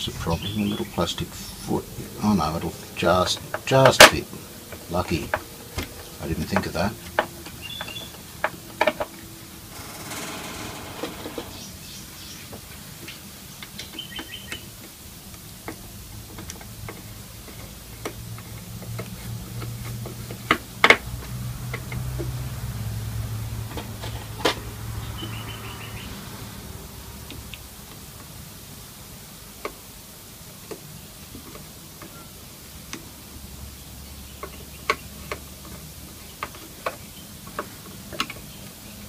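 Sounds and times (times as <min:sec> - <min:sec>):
low hum: 0:09.1 - 0:12.4.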